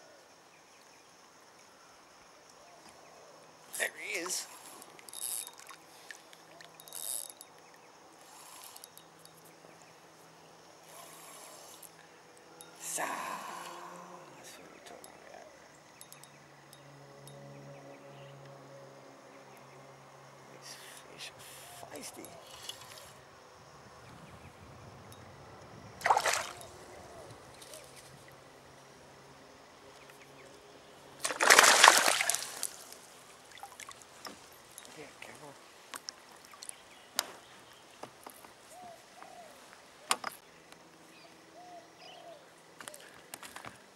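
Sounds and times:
fishing reel whirring: 5.1s - 5.6s, 6.8s - 7.4s
fish splashing at the surface: 26.0s - 26.8s, 31.2s - 34.0s.

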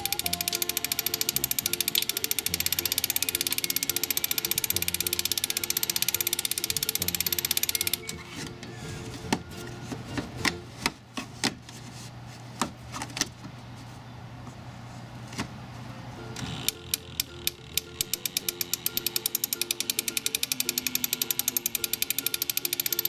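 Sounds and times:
ratchet clicking: 0.0s - 8.1s, 16.7s - 23.0s.

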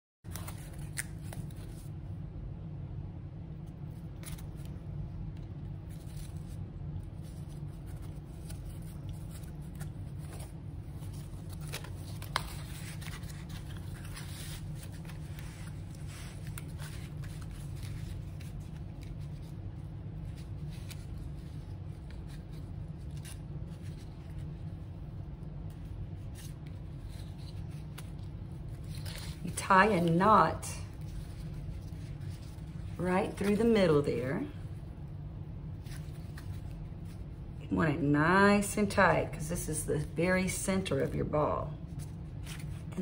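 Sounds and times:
steady low hum: 0.3s - 43.0s
yarn and cardboard rustling: 7.2s - 19.6s.

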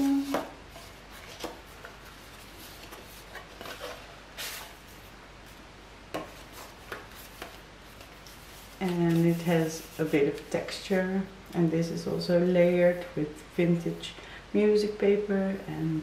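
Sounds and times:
paper rustling: 0.0s - 5.1s, 6.2s - 10.7s.

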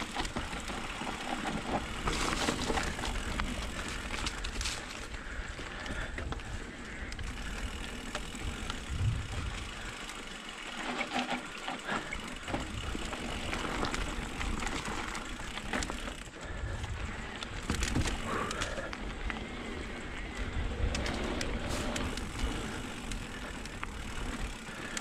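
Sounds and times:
bike rattling over bumps: 0.0s - 25.0s
bike tyres on dirt and gravel: 0.0s - 25.0s
wind rumbling on microphone: 1.6s - 10.0s, 16.4s - 24.5s.

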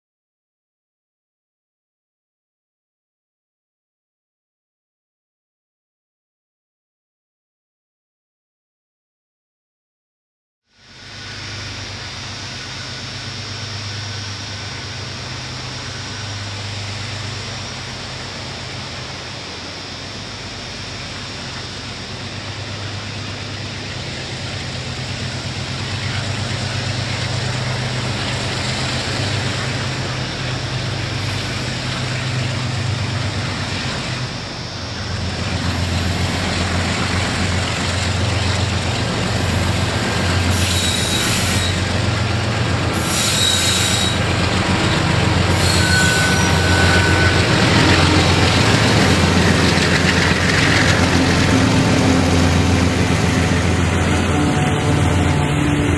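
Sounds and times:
diesel locomotive engines humming: 10.7s - 55.9s
steel wheels squealing: 25.0s - 36.9s, 39.2s - 55.9s.

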